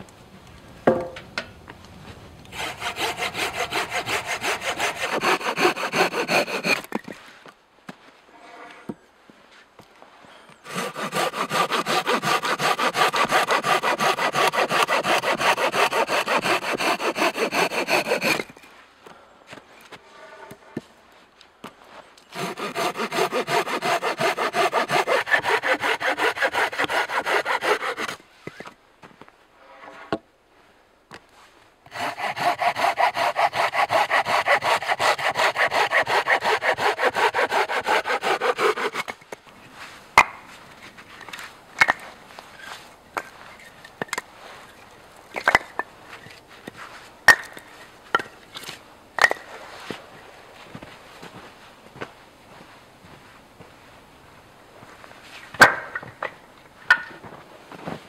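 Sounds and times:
wooden knocks of firewood: 0.8s - 1.5s, 55.6s - 57.2s
hand saw cutting a branch: 2.5s - 7.0s, 10.6s - 18.5s, 22.3s - 28.2s, 31.9s - 39.2s.

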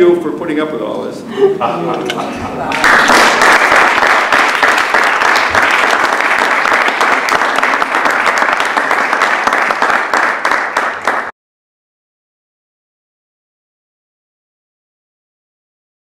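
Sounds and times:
audience applauding: 2.6s - 11.3s.

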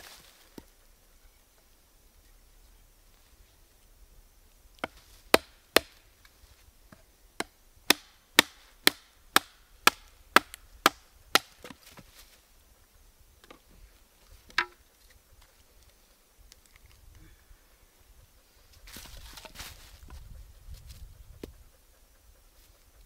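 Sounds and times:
wood chopping strikes: 4.8s - 6.0s, 7.4s - 12.0s, 14.5s - 14.8s.

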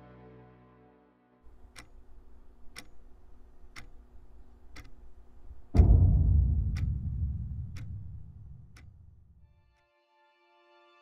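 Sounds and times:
clock ticking: 1.5s - 9.4s
deep cinematic boom: 5.7s - 9.4s
faint low drone: 5.8s - 9.4s.

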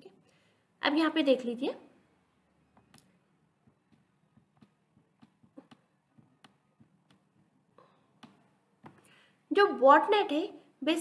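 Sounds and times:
pen tapping on tablet: 2.8s - 7.6s.

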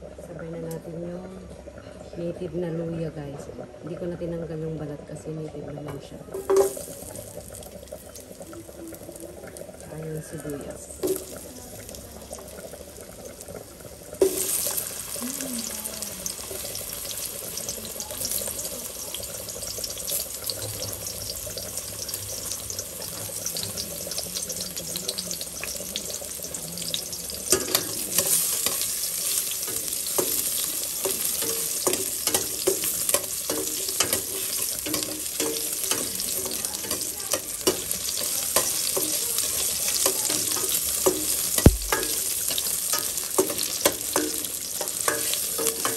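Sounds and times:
onion sizzling in oil: 6.0s - 45.9s
metal spatula scraping a pot: 41.9s - 45.9s.

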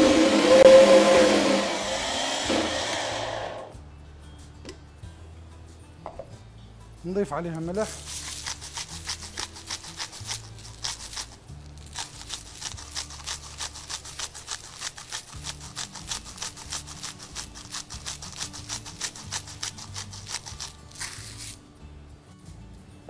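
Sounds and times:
utensil beating cream in bowl: 8.0s - 11.4s, 12.0s - 20.8s.

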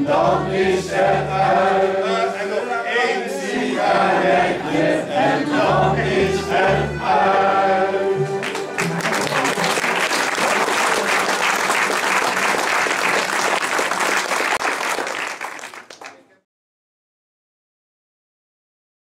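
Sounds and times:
group singing: 0.0s - 8.7s
crowd applauding: 8.4s - 16.4s.

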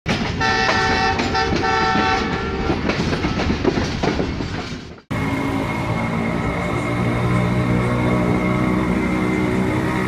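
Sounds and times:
train running clickety-clack: 0.1s - 10.0s
locomotive air horn: 0.4s - 2.7s.

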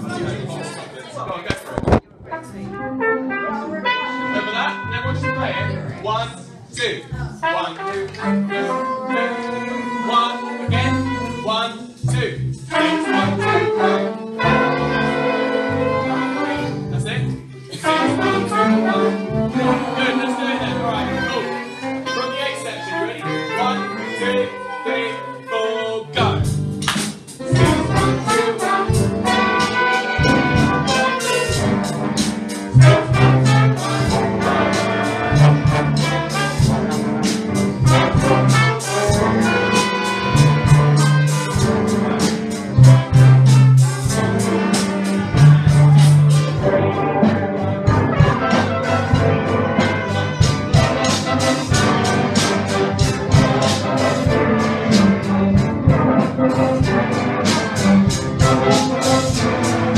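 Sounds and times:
school ensemble playing: 0.0s - 59.9s.

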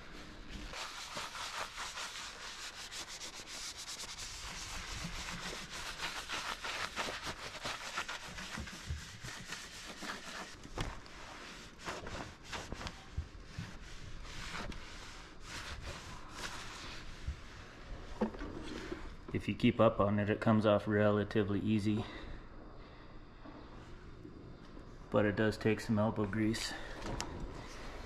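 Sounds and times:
cloth rag scrubbing metal: 0.0s - 17.8s.

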